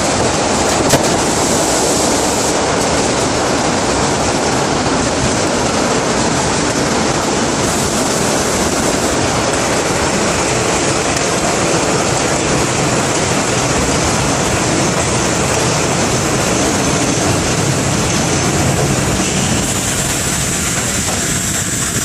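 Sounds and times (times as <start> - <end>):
subway train wheels on rails: 0.0 - 22.0.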